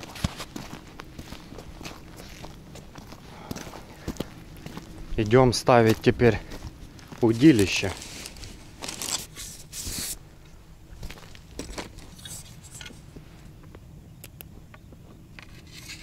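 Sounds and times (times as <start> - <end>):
fabric bag rustling and scraping: 7.4 - 10.2.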